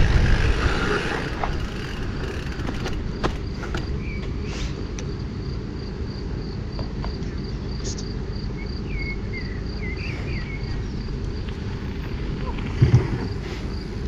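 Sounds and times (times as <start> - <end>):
steady low rumble: 0.0 - 14.0
insect chirping: 0.1 - 14.0
bird chirps: 8.5 - 11.0.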